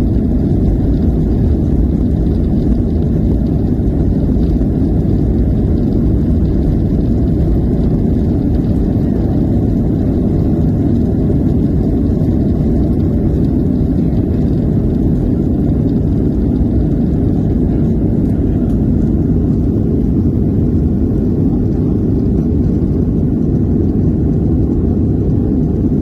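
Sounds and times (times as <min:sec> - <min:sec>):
jet engines at takeoff thrust: 0:00.0 - 0:26.0
wheels rumbling on runway: 0:00.0 - 0:26.0.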